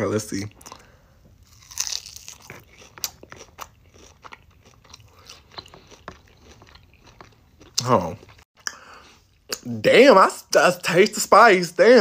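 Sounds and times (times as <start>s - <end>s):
crunchy chewing: 0.6s - 8.4s.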